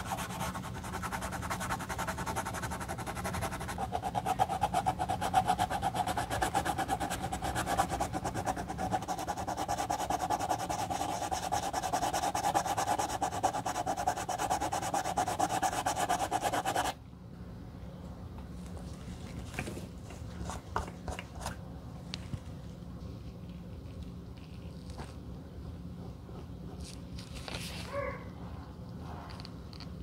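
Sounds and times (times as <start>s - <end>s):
sandpaper rasping on leather: 0.0s - 17.0s.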